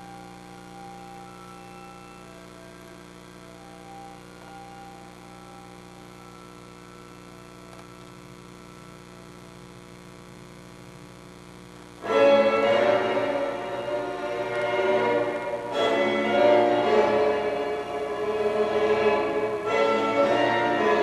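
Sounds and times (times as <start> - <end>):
electrical mains hum: 0.0 - 21.0
loud music: 12.0 - 21.0.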